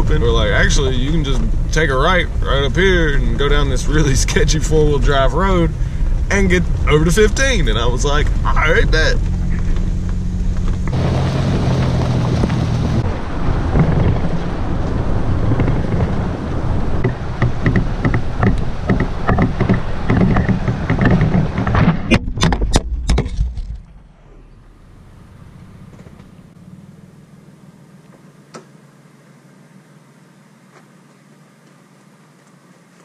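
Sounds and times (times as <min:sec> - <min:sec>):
truck engine running: 0:00.0 - 0:33.0
tyres rumbling on gravel: 0:00.0 - 0:33.0
knocks and rattles: 0:09.2 - 0:16.3, 0:16.9 - 0:24.1.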